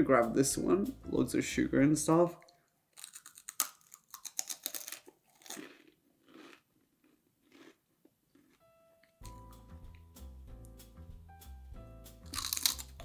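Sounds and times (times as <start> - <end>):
crunchy snack chewing: 2.9 - 9.4, 12.2 - 13.0.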